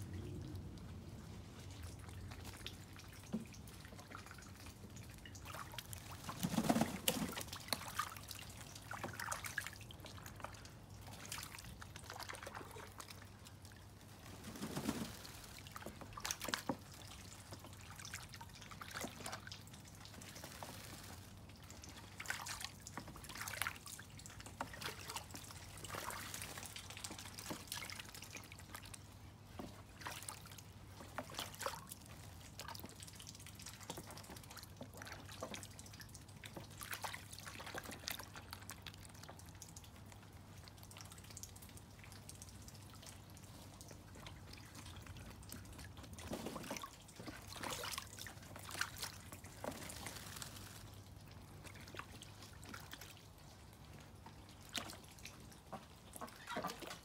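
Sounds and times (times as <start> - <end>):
water dripping and trickling: 0.0 - 57.0.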